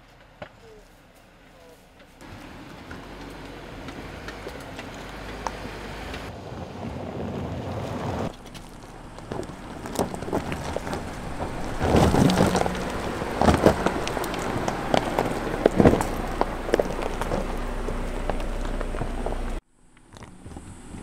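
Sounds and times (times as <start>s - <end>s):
tyres crunching over gravel: 0.0s - 19.6s.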